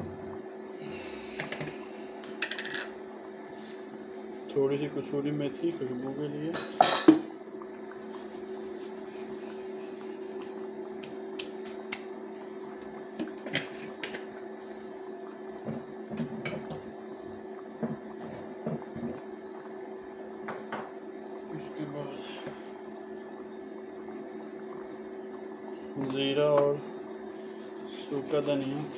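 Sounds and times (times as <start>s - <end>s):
cooktop humming: 0.0s - 28.9s
curry simmering with bubble pops: 7.1s - 27.2s.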